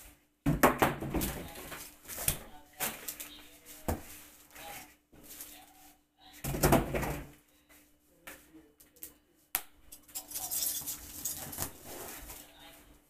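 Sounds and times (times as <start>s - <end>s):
scraping rustle: 10.2s - 12.6s.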